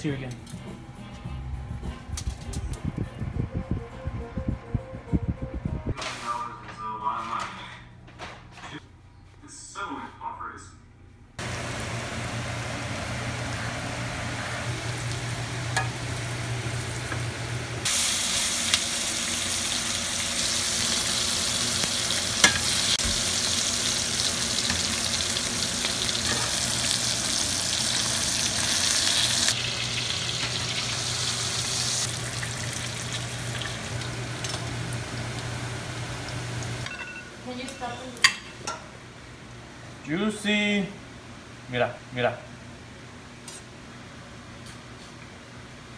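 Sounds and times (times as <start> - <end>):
butter sizzling in frying pan: 11.4 - 36.8.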